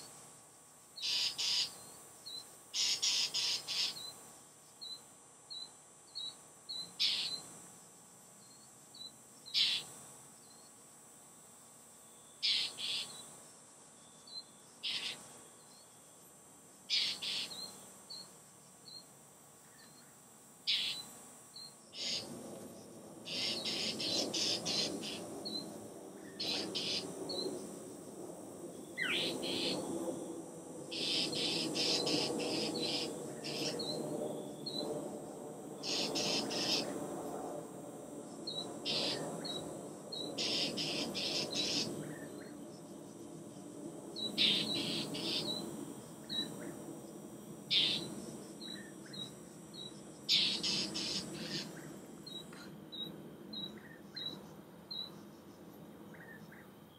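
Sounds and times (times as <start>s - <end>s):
mockingbirds scolding calls: 1.0s - 4.1s, 4.8s - 7.4s, 9.5s - 9.9s, 12.4s - 13.2s, 14.3s - 15.2s, 16.9s - 18.2s, 20.7s - 21.1s, 22.0s - 22.3s, 23.3s - 27.6s, 29.0s - 29.9s, 30.9s - 34.0s, 35.8s - 37.0s, 38.5s - 42.5s, 44.2s - 46.8s, 47.7s - 55.2s.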